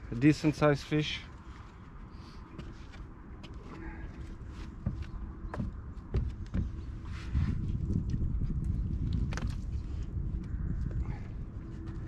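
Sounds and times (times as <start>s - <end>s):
wind rumbling on microphone: 0.0s - 12.0s
knocks on boat deck: 4.9s - 6.7s.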